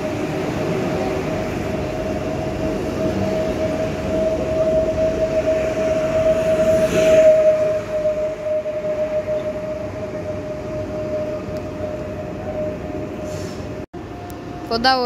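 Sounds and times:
electric train drive whine: 0.0s - 15.0s
train wheels rumbling: 0.0s - 15.0s.

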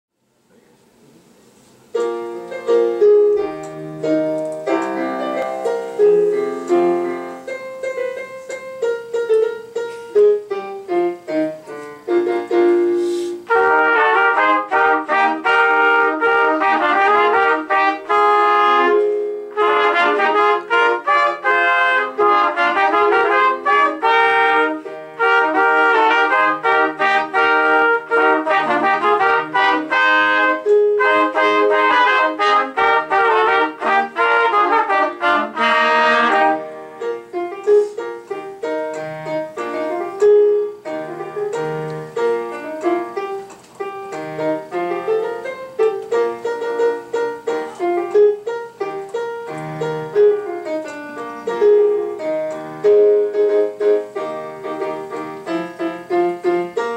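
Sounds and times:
piano playing: 1.8s - 56.9s
trumpets in harmony: 13.0s - 37.2s.

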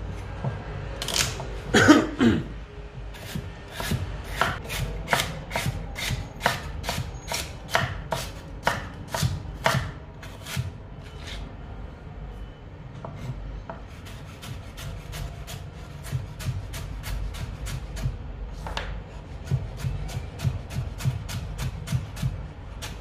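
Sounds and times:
knife chopping on cutting board: 3.2s - 10.7s.

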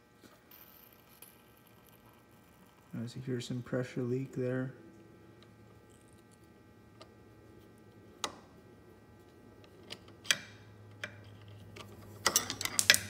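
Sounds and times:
metal screw falling and bouncing: 0.5s - 2.9s, 12.2s - 13.0s.

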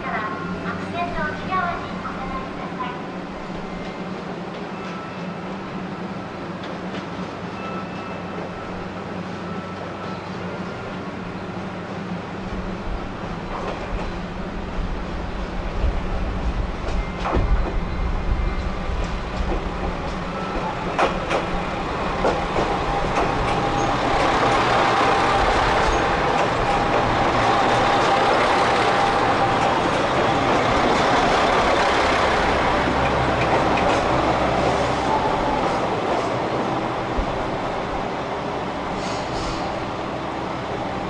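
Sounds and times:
diesel train running noise: 0.0s - 41.0s
train wheels clacking over rail joints: 18.9s - 34.7s.

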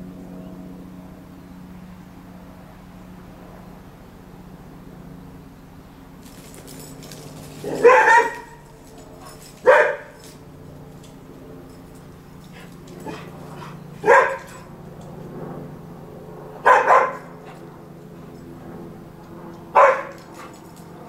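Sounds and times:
dog barking: 7.6s - 10.3s, 12.6s - 14.7s, 16.6s - 17.6s, 19.7s - 20.6s.

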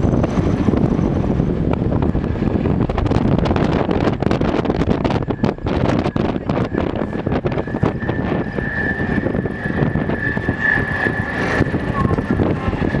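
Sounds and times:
armoured vehicle engine running: 0.0s - 13.0s
constant rattling: 0.0s - 13.0s
steady high whine: 0.0s - 13.0s.

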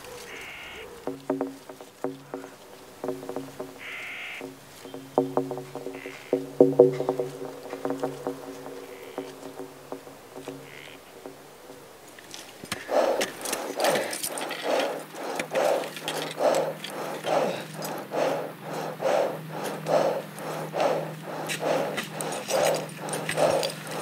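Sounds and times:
steady low hum: 1.0s - 24.0s
person breathing heavily: 12.8s - 24.0s.

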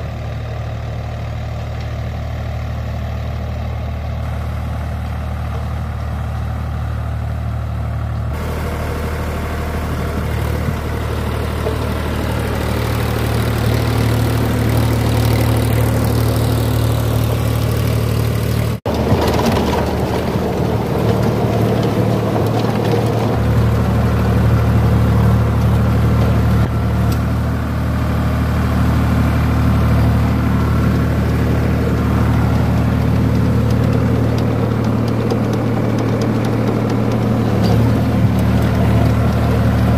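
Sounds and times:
tractor diesel engine running: 0.0s - 39.9s
rotavator clattering through soil: 8.4s - 27.3s, 29.6s - 39.9s.

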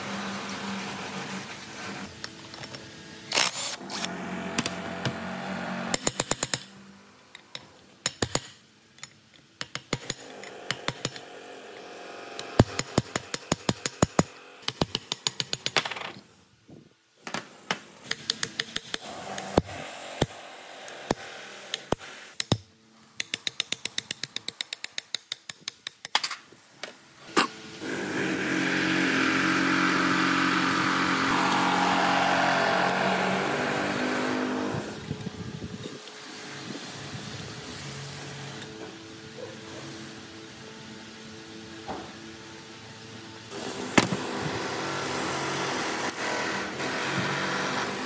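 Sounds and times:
power tool motor running: 3.3s - 6.0s, 27.6s - 38.7s, 43.5s - 48.0s.

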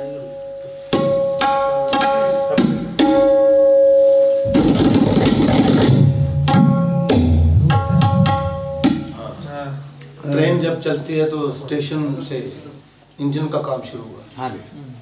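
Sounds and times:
tabla drumming: 0.9s - 9.4s.

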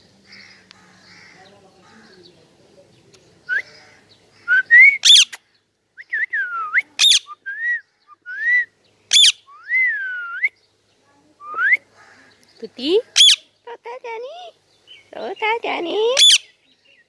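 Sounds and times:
parakeets whistling: 4.4s - 5.4s, 7.0s - 10.4s, 13.2s - 13.4s, 16.1s - 16.5s
parakeet screeches: 13.2s - 13.4s, 16.2s - 16.5s.

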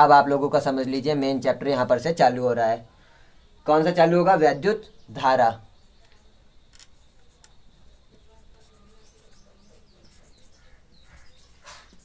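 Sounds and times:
marker squeaking on whiteboard: 6.8s - 12.0s.

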